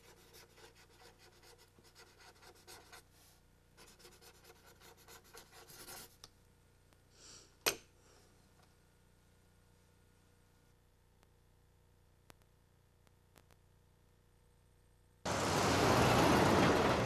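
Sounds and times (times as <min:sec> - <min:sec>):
pen scratching on paper: 0:00.0 - 0:03.0, 0:03.8 - 0:06.2.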